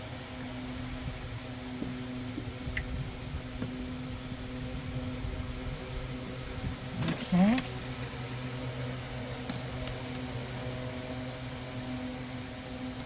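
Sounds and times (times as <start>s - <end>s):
steady mechanical hum: 0.0s - 13.0s.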